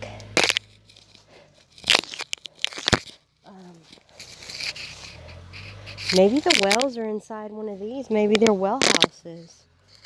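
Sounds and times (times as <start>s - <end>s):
dry leaves and twigs crunching: 0.0s - 10.0s
twigs snapping: 0.2s - 7.0s, 8.3s - 9.2s.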